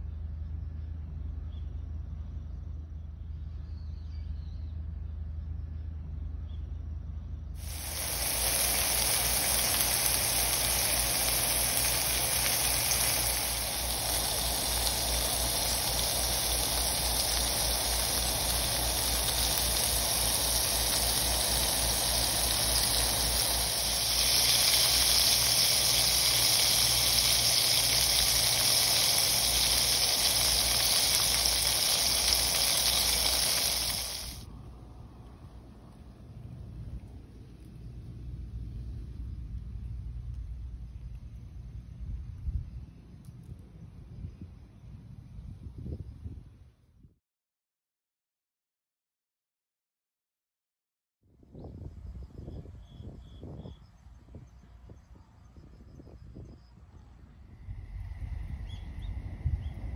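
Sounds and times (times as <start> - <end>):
patties sizzling in hot oil: 7.6 - 34.4.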